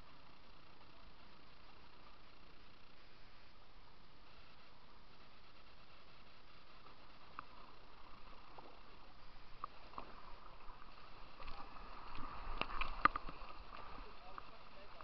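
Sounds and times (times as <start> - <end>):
rushing river water: 7.1 - 15.0.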